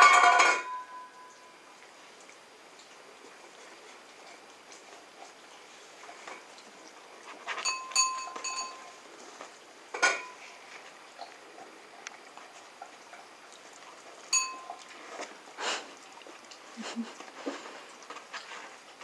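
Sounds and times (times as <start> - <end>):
steel bowl clinking and ringing: 0.0 - 1.7, 7.6 - 9.0, 10.0 - 10.4, 14.3 - 15.0.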